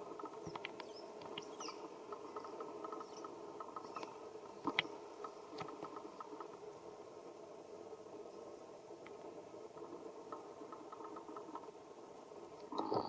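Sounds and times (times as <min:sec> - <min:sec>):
steady low hum: 0:00.0 - 0:13.0
small clicks: 0:00.2 - 0:01.5, 0:02.1 - 0:06.5.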